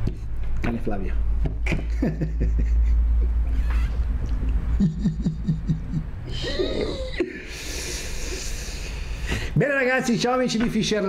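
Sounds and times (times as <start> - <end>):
man laughing: 1.6 - 4.0, 4.7 - 8.5.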